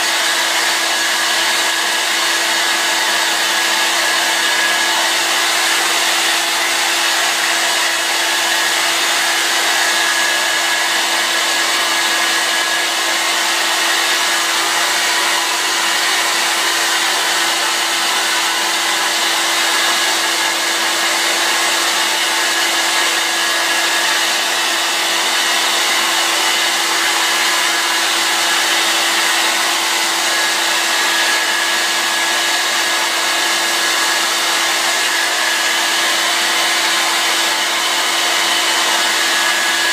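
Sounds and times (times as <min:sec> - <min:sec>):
hair dryer running: 0:00.0 - 0:39.9.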